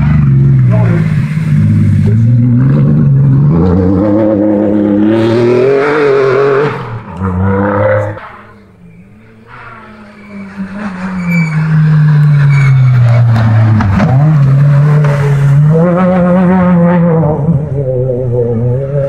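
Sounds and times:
rally car engine revving: 0:00.0 - 0:19.0.

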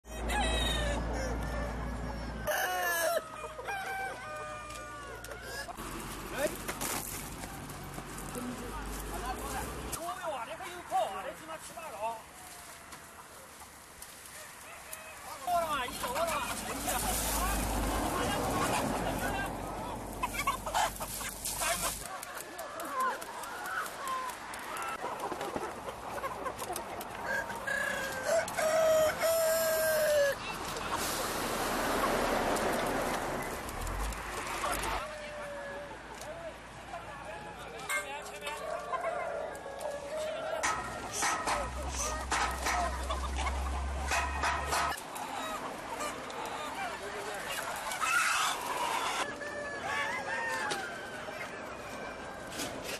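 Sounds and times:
rooster crowing: 0:00.0 - 0:05.8, 0:27.2 - 0:30.4, 0:48.0 - 0:52.2
chickens clucking: 0:00.1 - 0:36.3, 0:36.9 - 0:52.9.

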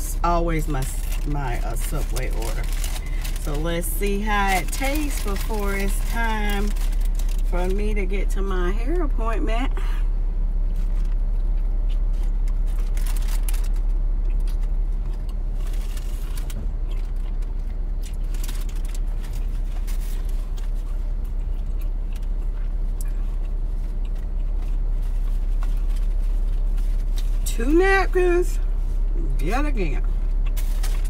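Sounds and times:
car engine idling: 0:00.0 - 0:31.0
paper wrapper crinkling: 0:00.6 - 0:07.8, 0:12.1 - 0:14.7, 0:15.6 - 0:17.4, 0:18.0 - 0:20.9.

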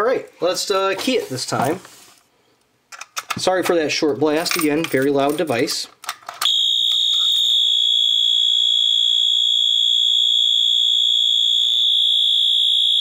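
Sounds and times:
fire alarm horn continuous tone: 0:06.4 - 0:13.0.

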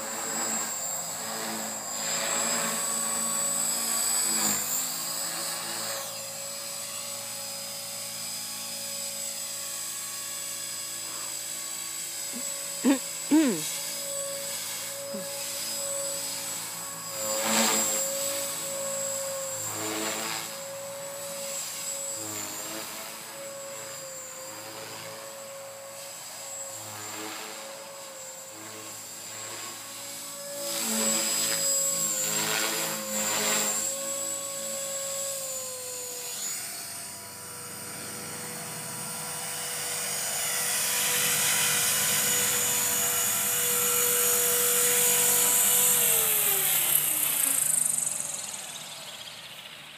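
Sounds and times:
rc helicopter motor and rotor whine: 0:00.0 - 0:49.9.

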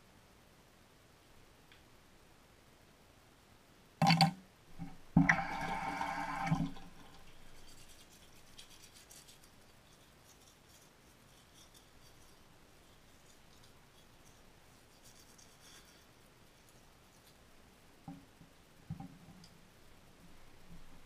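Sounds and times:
tap water running: 0:04.0 - 0:07.9
teeth brushing: 0:07.0 - 0:16.8.

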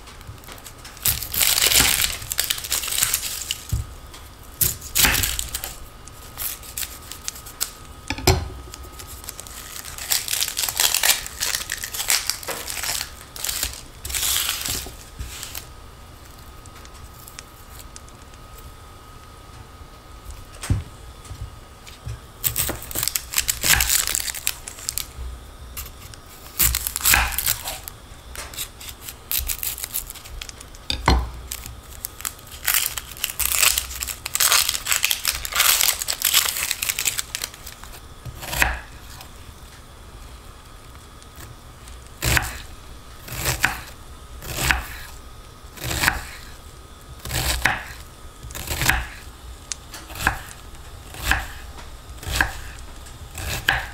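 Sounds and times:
crinkling and tearing: 0:00.0 - 0:07.9, 0:08.6 - 0:18.6, 0:21.9 - 0:25.2, 0:25.8 - 0:39.4
knife chopping on cutting board: 0:38.3 - 0:38.9, 0:42.2 - 0:42.6, 0:43.4 - 0:43.9, 0:44.5 - 0:45.1, 0:45.8 - 0:46.4, 0:47.2 - 0:49.2, 0:50.1 - 0:50.5, 0:51.1 - 0:51.6, 0:52.2 - 0:52.8, 0:53.4 - 0:53.9.

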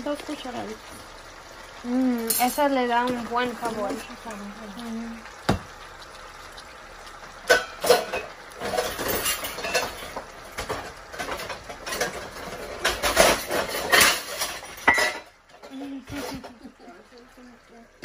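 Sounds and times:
pots and pans clattering: 0:02.2 - 0:04.0, 0:07.4 - 0:17.0.

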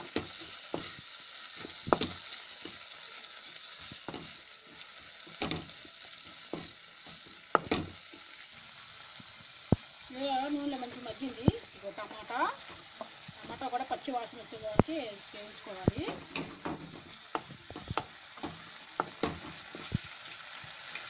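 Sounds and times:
spatula scraping and knocking pan: 0:00.0 - 0:02.9, 0:03.8 - 0:08.3, 0:15.7 - 0:20.0
chillies sizzling in hot oil: 0:00.0 - 0:21.0.

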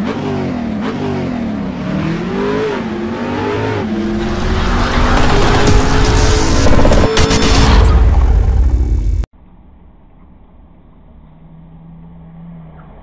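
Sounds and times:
car engine revving: 0:00.0 - 0:09.2.

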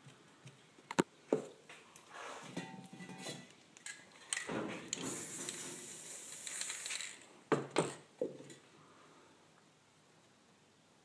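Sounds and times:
spray paint can hissing: 0:04.9 - 0:07.2.

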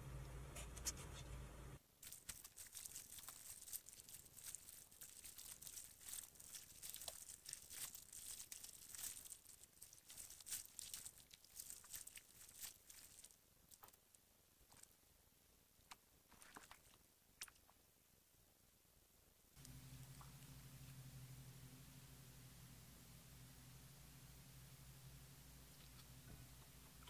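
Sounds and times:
slime crackling and popping: 0:02.0 - 0:14.0.

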